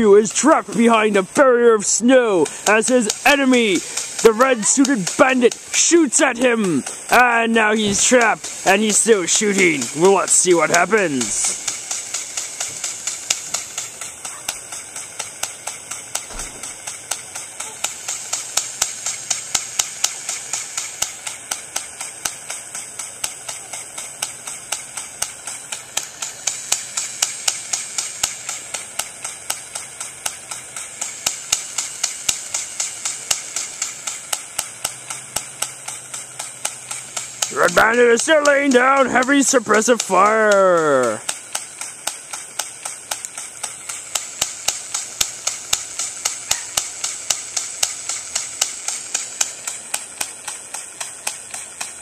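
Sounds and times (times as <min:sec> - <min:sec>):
airsoft pistol shots: 0:16.2 - 0:17.8.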